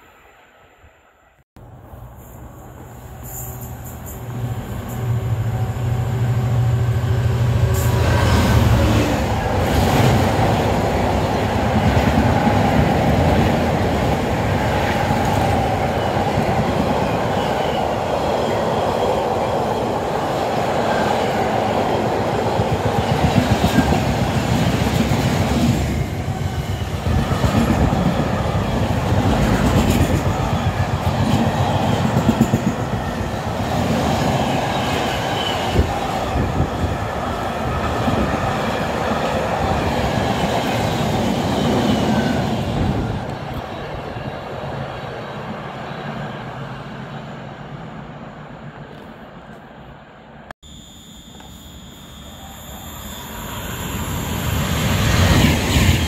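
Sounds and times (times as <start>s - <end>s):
train wheels clattering on rails: 22.2s - 33.3s.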